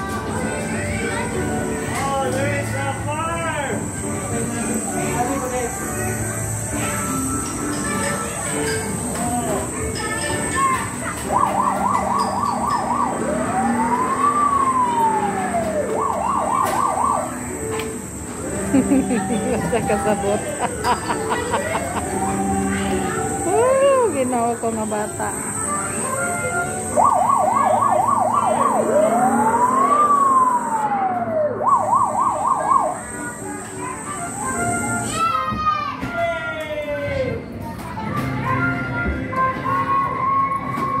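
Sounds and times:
electronic toy siren: 11.3s - 17.5s, 26.9s - 35.0s.

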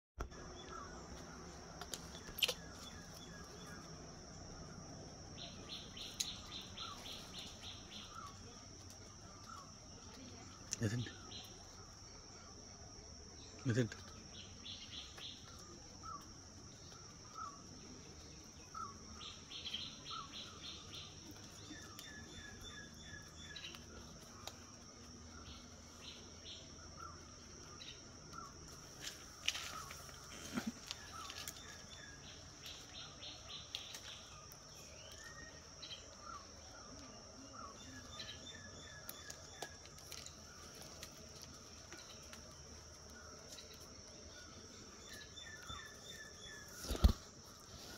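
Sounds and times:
birds chirping: 0.2s - 47.9s
rustling: 39.2s - 47.9s.

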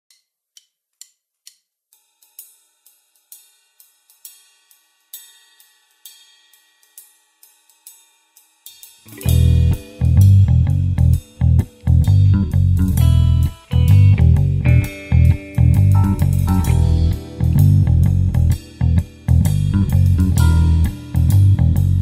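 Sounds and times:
hi-hat ticking: 0.1s - 22.0s
clean electric guitar notes: 9.1s - 22.0s
full band with bass and drums: 9.2s - 22.0s.

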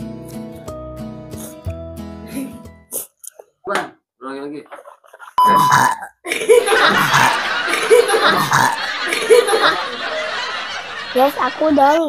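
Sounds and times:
loud laughter: 5.6s - 11.7s.

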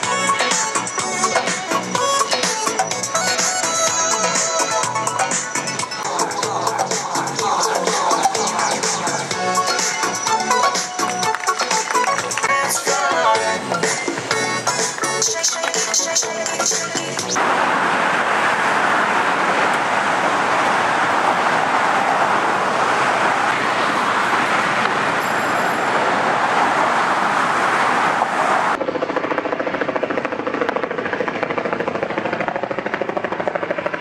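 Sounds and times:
traffic noise: 0.0s - 34.0s.

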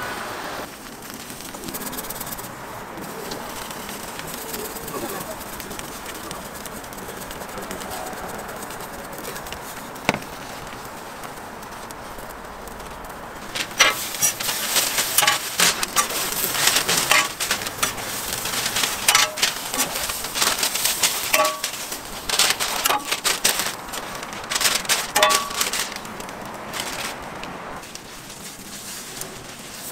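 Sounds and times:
paper wrappers rustling: 0.6s - 29.9s.

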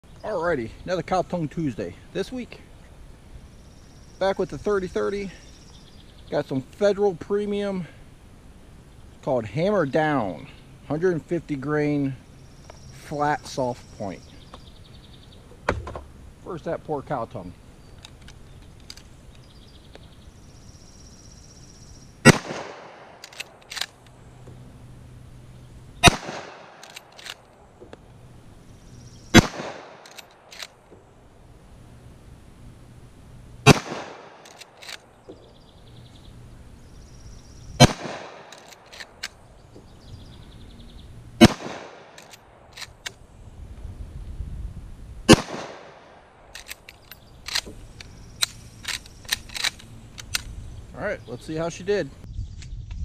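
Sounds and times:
rifle shots: 22.2s - 24.0s, 26.0s - 27.4s, 29.3s - 30.8s, 33.6s - 35.0s, 37.8s - 39.2s, 41.4s - 43.0s, 45.3s - 46.8s
rifle lever clicks: 23.2s - 24.1s, 26.8s - 27.5s, 29.4s - 30.8s, 34.4s - 35.0s, 37.8s - 39.4s, 42.1s - 43.2s, 46.5s - 50.5s.

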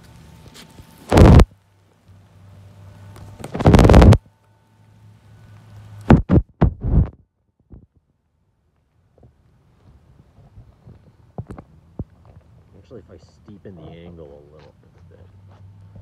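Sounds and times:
rubbing on phone microphone: 0.6s - 1.4s, 3.4s - 4.2s, 6.1s - 7.9s.

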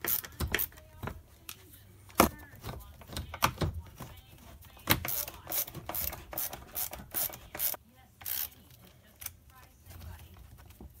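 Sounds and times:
screwdriver scraping strokes: 5.0s - 8.5s.

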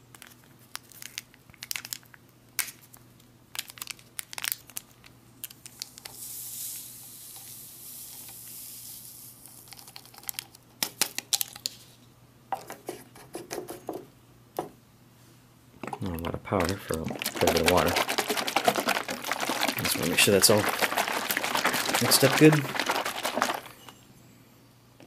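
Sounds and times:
packet tearing and crinkling: 3.6s - 5.6s, 16.6s - 23.9s
powder pouring hiss: 5.8s - 10.2s, 16.6s - 24.0s.

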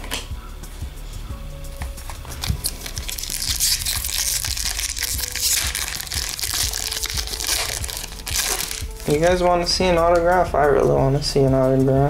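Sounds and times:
wrapper crinkling and crackling: 2.1s - 9.3s.

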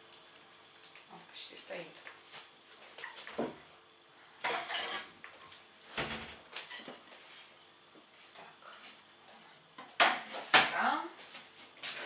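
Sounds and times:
kitchenware clattering: 4.4s - 5.1s.

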